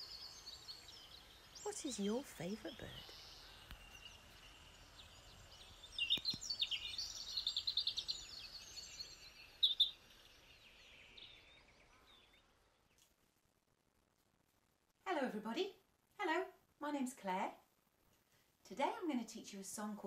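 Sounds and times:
finch song: 0.0 - 13.1
faint outdoor hiss: 0.0 - 20.0.

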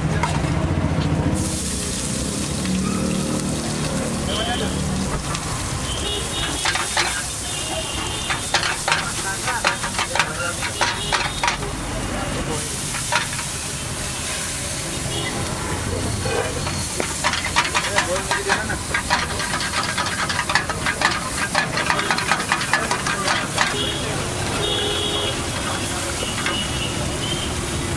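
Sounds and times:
eggs sizzling in a wok: 1.4 - 27.9
metal spatula clanking on a pan: 6.3 - 11.7, 12.9 - 13.6, 16.3 - 23.9, 25.6 - 26.7.

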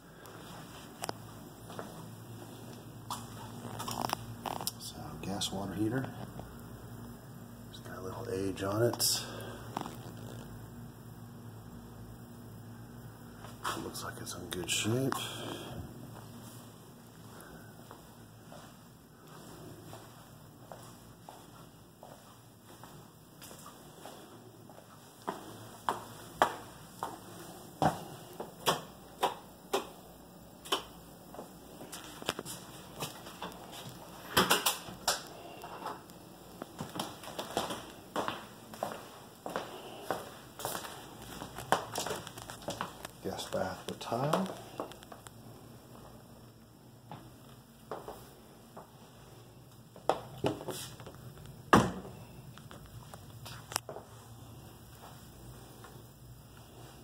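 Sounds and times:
footsteps on hard floor: 36.6 - 43.0.

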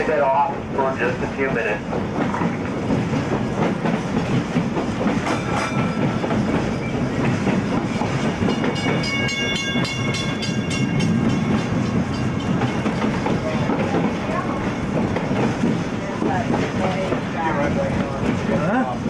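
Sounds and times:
tram rumbling with wheel clatter: 0.0 - 19.0
tram bell ringing rapidly: 4.0 - 15.6.

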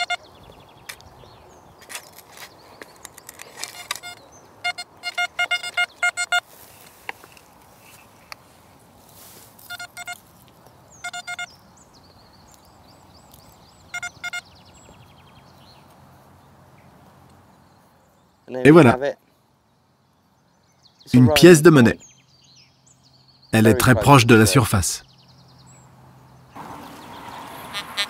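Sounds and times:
metal detector fast beeps: 0.0 - 0.2, 3.8 - 6.4, 9.6 - 10.2, 11.0 - 11.5, 13.9 - 14.5.

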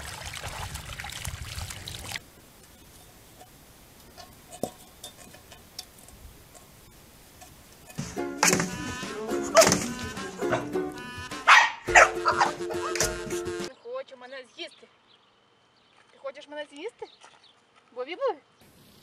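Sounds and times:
water splashing and sloshing: 0.0 - 2.4, 17.1 - 17.9.

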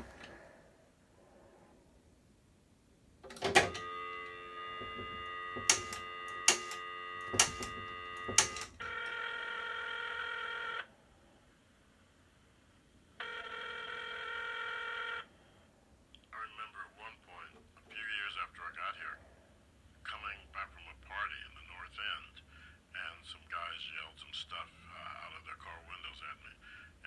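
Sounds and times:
phone ringing tone: 3.3 - 10.9, 13.2 - 15.3
steady phone tone: 3.3 - 10.9, 13.2 - 15.3
sharp clicks: 4.8 - 8.9.

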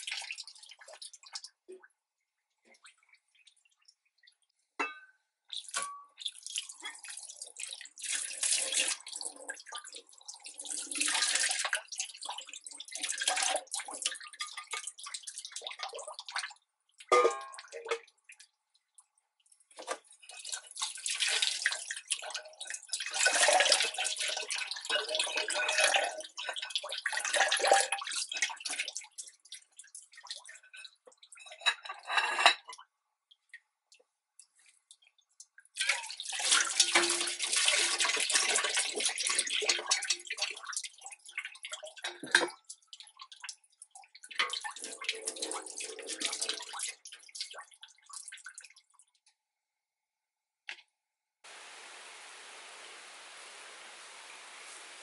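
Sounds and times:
water splashing in steel sink: 0.0 - 2.0, 2.6 - 49.3.

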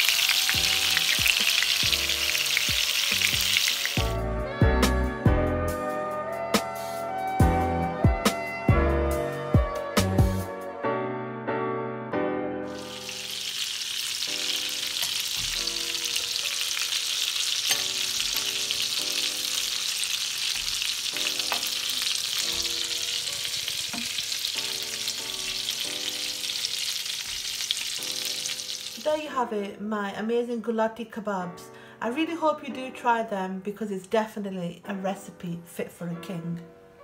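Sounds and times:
kebabs sizzling in oil: 0.0 - 4.2, 12.7 - 29.2
metal tongs clicking on pan: 17.6 - 18.5.

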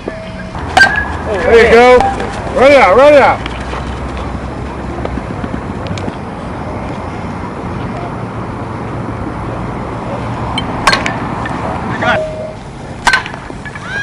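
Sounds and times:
outdoor rumble and hiss: 0.0 - 14.0
sharp crack: 10.8 - 11.2, 13.0 - 13.8.

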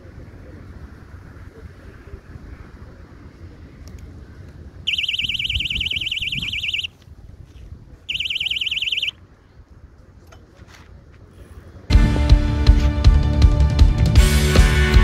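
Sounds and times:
warbling electronic bite alarm: 4.9 - 6.9, 8.1 - 9.2.

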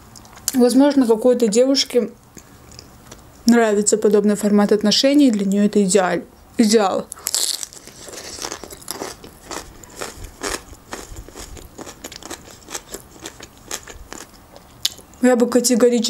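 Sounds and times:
chewing and biting food: 7.2 - 15.1.

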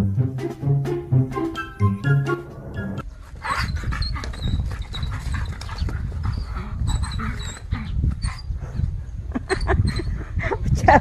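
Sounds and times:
dog panting: 3.2 - 10.5.

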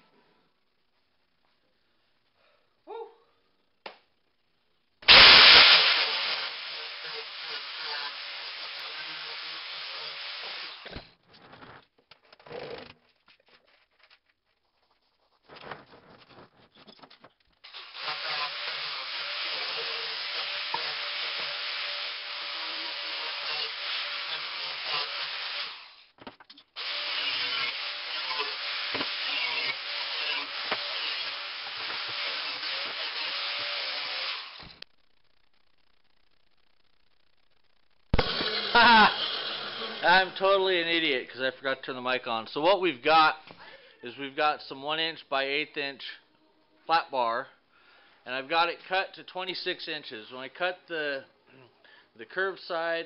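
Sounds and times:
angle grinder grinding metal: 5.1 - 11.0, 17.6 - 26.1, 26.8 - 34.8, 38.2 - 41.1.

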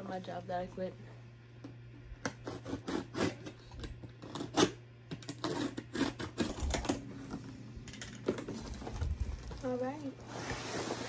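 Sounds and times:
box cutter slitting tape: 2.2 - 7.0.

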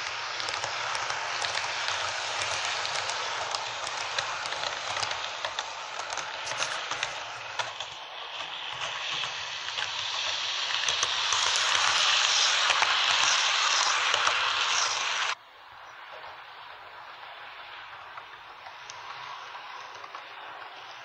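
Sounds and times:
model train rumbling on track: 0.0 - 21.0.

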